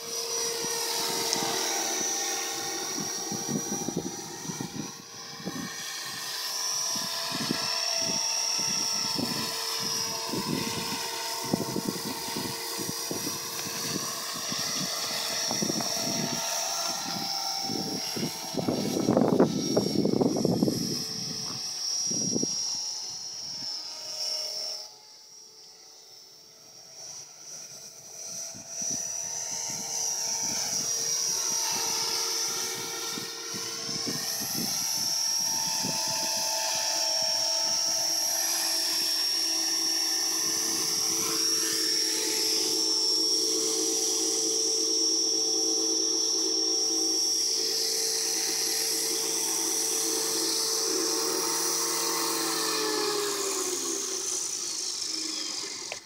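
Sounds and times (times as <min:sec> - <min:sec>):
model helicopter rotor whine: 0:00.0 - 0:56.0.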